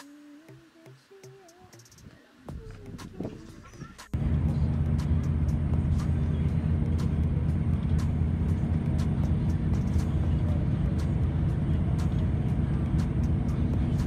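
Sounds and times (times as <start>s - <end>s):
bus engine hum: 2.8s - 14.0s
road noise: 3.1s - 14.0s.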